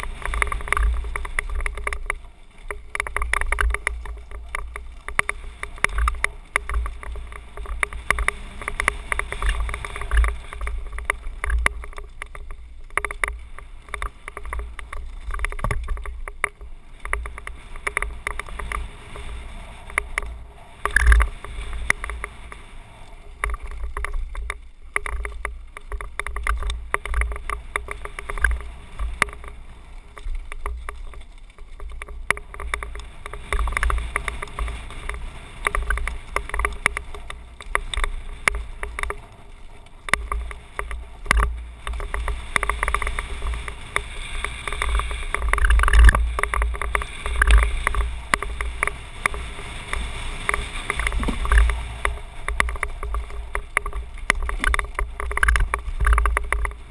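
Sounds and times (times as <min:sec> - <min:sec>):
bike clicks and rattles: 0:00.0 - 0:56.9
tyre noise on dirt: 0:00.0 - 0:56.9
wind buffeting microphone: 0:31.7 - 0:56.9.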